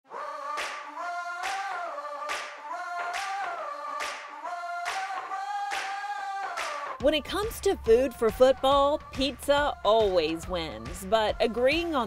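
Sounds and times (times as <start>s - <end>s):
choir-like vocal chords: 0.1s - 7.0s.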